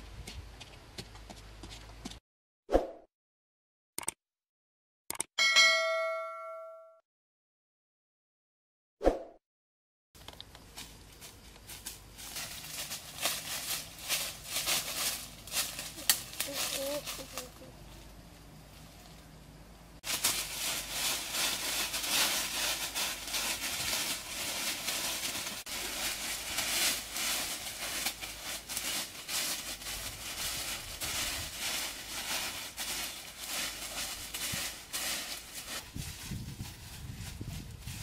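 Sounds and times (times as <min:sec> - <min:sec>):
dry leaves rustling and crackling: 0:10.6 - 0:19.2, 0:20.0 - 0:38.0.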